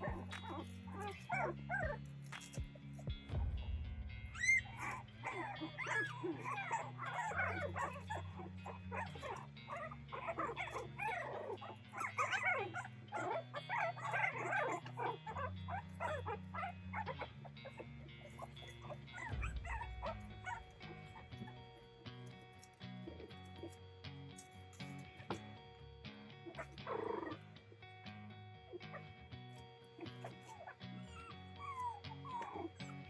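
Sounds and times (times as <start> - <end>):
puppies crying squeakily: 0.0 - 2.7, 4.3 - 21.6, 22.6 - 23.8, 26.4 - 27.4, 30.0 - 33.0
background music low notes: 0.0 - 33.0.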